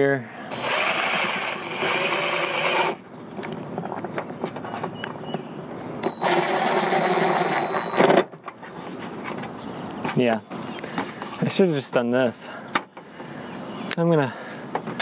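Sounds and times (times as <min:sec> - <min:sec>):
cordless drill driving a screw: 0:00.5 - 0:03.0, 0:06.0 - 0:08.2.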